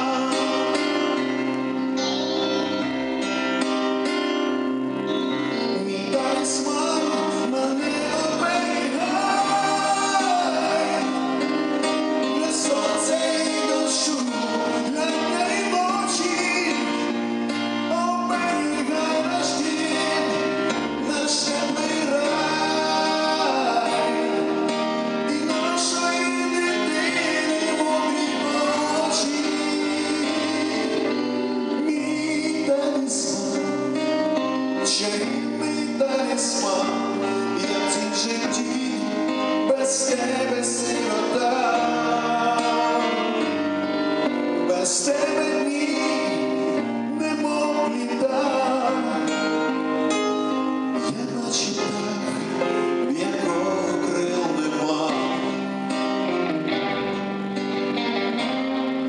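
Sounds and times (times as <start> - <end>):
men singing: 0.0 - 1.2, 5.6 - 34.1, 34.8 - 43.6, 44.7 - 49.7, 51.0 - 55.8
electric keyboard: 0.0 - 59.0
electric bass guitar: 55.4 - 59.0.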